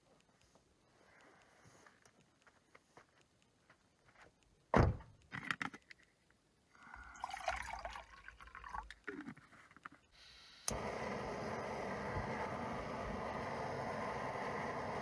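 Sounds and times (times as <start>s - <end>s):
water pouring into a pot: 7.0s - 8.9s.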